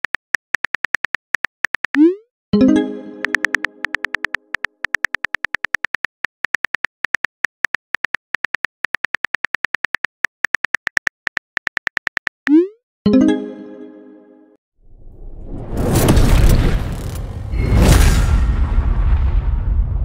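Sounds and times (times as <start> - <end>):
phone keyboard typing clicks: 0.0 - 2.2, 3.2 - 12.4.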